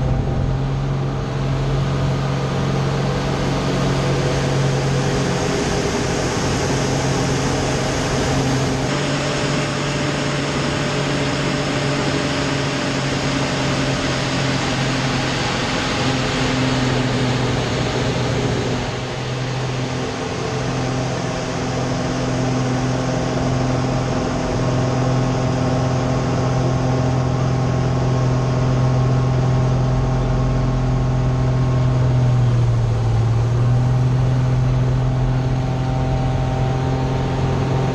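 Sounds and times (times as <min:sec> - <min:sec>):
air rushing past: 0:00.0 - 0:02.0
aircraft engine and propeller: 0:00.0 - 0:37.9.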